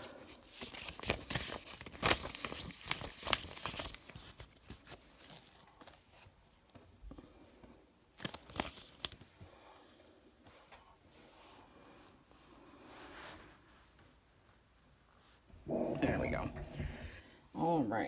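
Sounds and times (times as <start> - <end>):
plastic banknotes crinkling: 0.0 - 6.4, 8.1 - 9.3.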